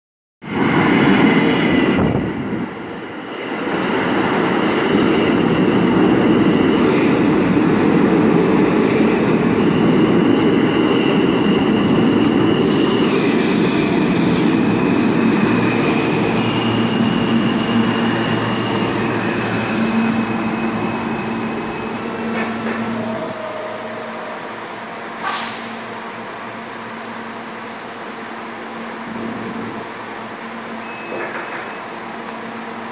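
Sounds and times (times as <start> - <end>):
train wheels rumbling on rail: 0.5 - 32.9
wheel squeal: 15.5 - 23.8
short hiss: 25.2 - 25.9.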